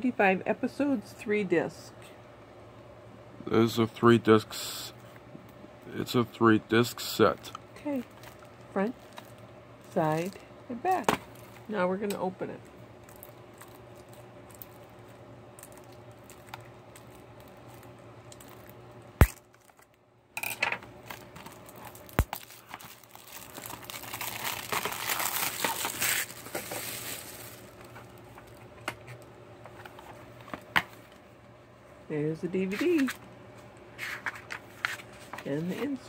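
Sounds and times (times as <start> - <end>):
plastic film crinkling and tearing: 7.9 - 10.4, 13.0 - 14.9, 15.6 - 19.9, 21.0 - 28.6.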